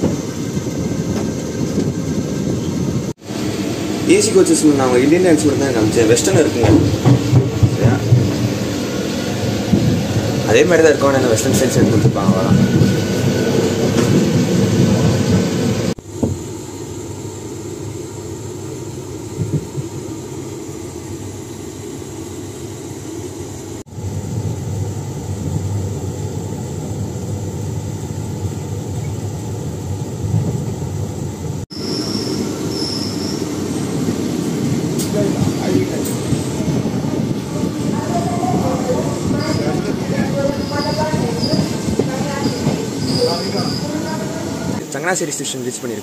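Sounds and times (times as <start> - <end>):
train rumbling on rails: 0.0 - 46.0
short high squeals: 31.7 - 33.5.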